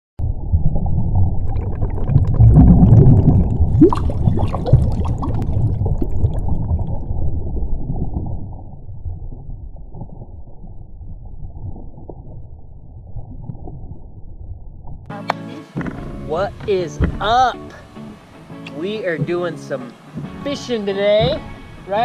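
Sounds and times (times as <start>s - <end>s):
bubbles fizzing and gurgling: 0.2s - 14.3s
deep underwater rumble: 0.2s - 15.1s.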